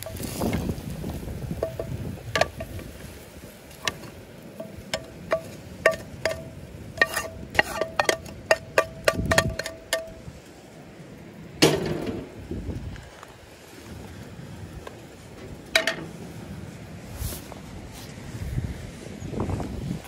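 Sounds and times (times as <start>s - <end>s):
pan knocking on stove grate: 1.6s - 2.8s, 3.8s - 10.2s
spatula tapping and scraping pan: 1.6s - 3.0s, 3.7s - 10.3s.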